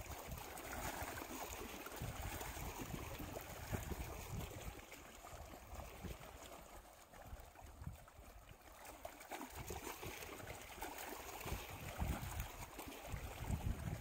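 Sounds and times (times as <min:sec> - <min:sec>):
small waves lapping on rocks: 0:00.0 - 0:14.0
wind buffeting microphone: 0:01.9 - 0:04.8, 0:11.4 - 0:14.0.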